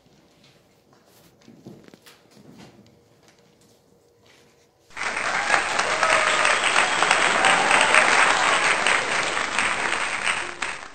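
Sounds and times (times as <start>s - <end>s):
people clapping: 4.9s - 10.9s.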